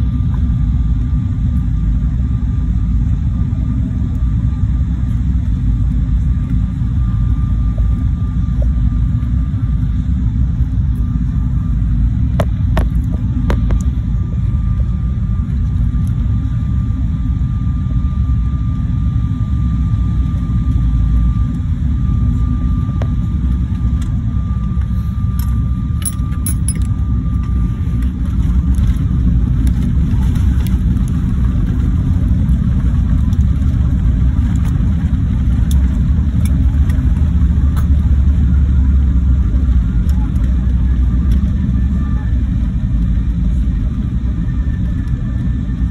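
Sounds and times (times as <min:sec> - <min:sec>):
airliner engine rumble: 0:00.0 - 0:45.9
faint steady whine: 0:00.0 - 0:45.9.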